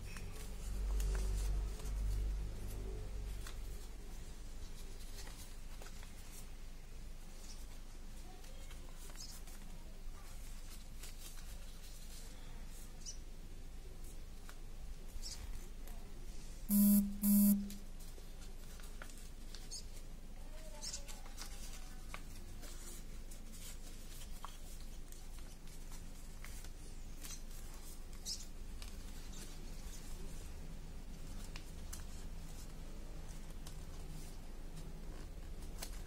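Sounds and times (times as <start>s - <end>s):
paper rustling and crinkling: 0.1s - 6.6s, 7.2s - 12.8s, 18.0s - 36.0s
short loud buzzes: 16.7s - 17.8s.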